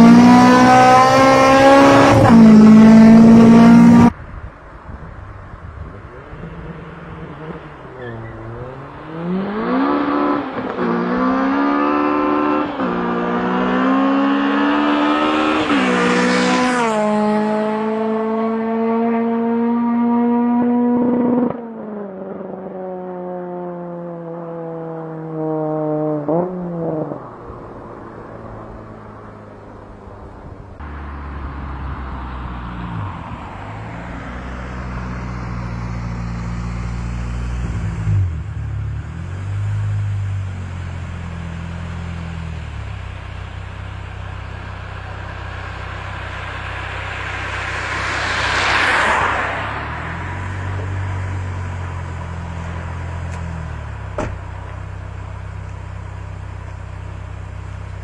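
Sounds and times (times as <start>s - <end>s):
car engine revving: 0.0s - 4.2s, 5.8s - 58.0s
car passing by: 6.1s - 21.6s, 30.8s - 38.5s, 44.2s - 53.8s.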